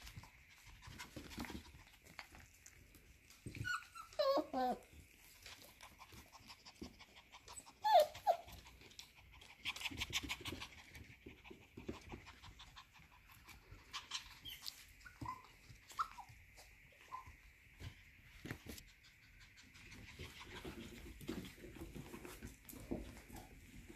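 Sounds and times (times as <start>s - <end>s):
puppy panting: 0.0s - 17.4s, 18.4s - 23.9s
puppy yelp: 3.5s - 5.0s, 6.8s - 8.6s, 13.8s - 16.4s
puppy whimpers: 3.5s - 8.7s, 13.8s - 16.4s.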